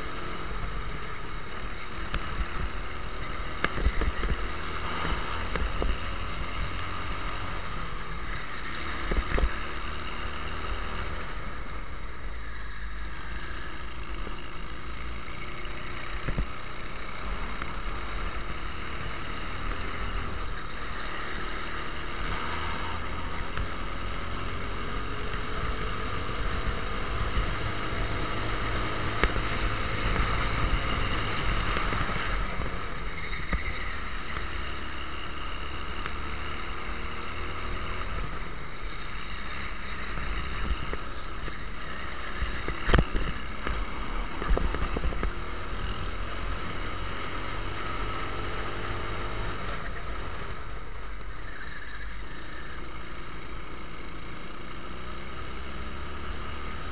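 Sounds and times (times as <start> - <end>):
kart engine revving: 0.0 - 56.9.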